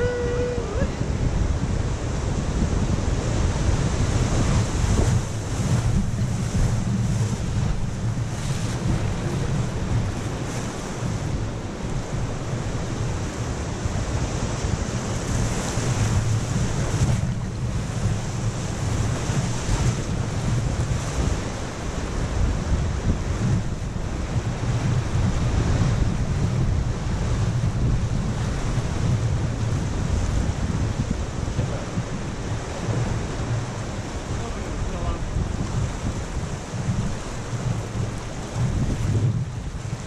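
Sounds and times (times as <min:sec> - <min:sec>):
whitewater rapids rushing: 0:00.0 - 0:01.3
low microphone rumble: 0:00.0 - 0:40.0.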